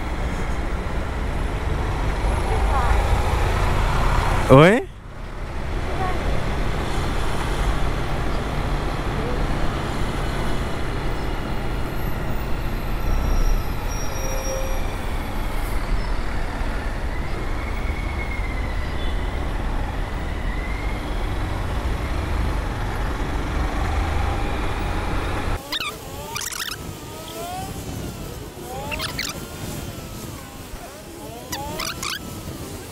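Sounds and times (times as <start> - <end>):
road noise: 0.0 - 32.9
motorcycle engine cruising: 21.0 - 32.9.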